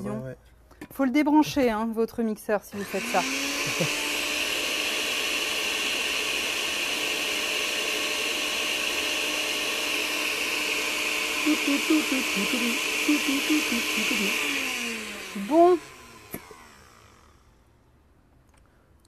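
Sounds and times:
blender motor whirring: 2.6s - 17.8s.

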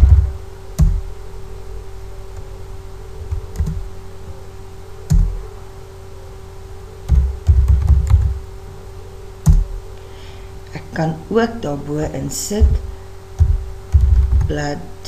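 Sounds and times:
low hum: 0.0s - 15.0s
keyboard typing: 3.2s - 3.9s, 5.1s - 5.4s, 7.1s - 8.4s, 13.4s - 14.6s.

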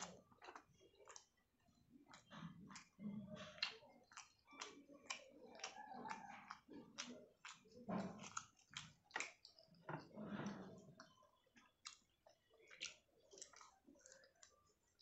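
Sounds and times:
person chewing: 0.0s - 15.0s.

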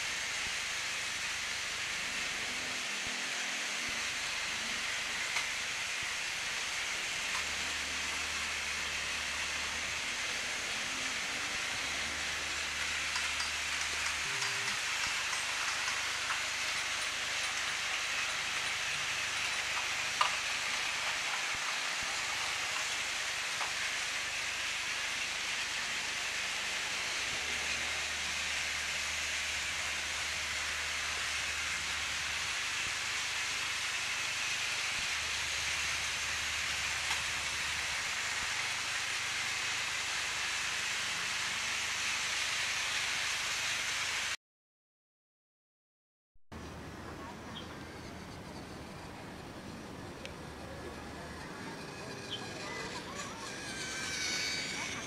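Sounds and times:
toy train motor whirring: 0.0s - 44.4s, 47.8s - 55.0s.

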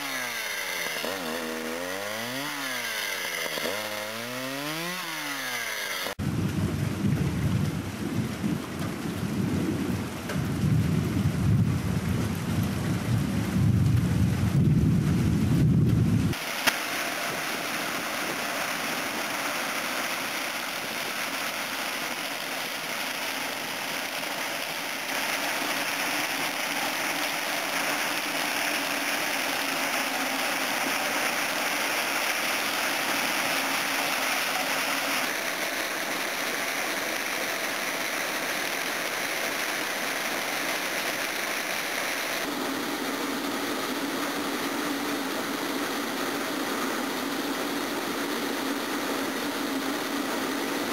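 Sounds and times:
combine harvester running: 15.7s - 50.9s.

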